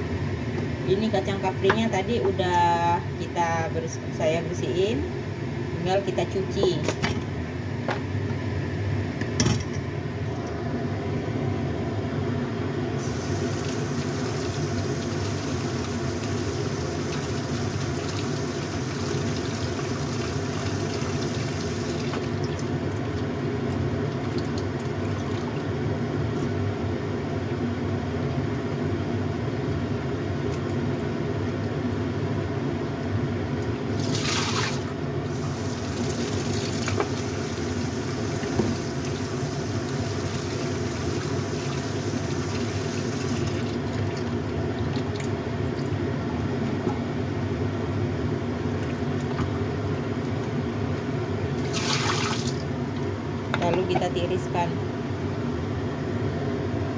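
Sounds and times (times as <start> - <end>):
tap water running into bowl: 13.0 - 22.7, 35.4 - 44.3.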